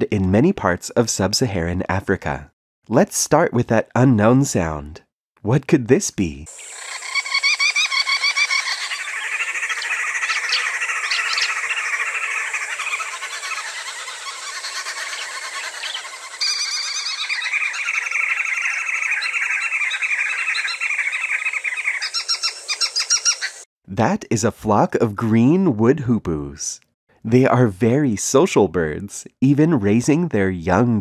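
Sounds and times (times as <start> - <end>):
birds chattering in chorus: 6.5 - 23.6.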